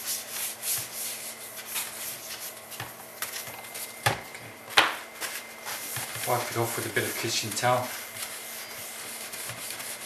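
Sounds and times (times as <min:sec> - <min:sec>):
paintbrush brushing a screen: 0:00.0 - 0:02.8, 0:05.2 - 0:10.0.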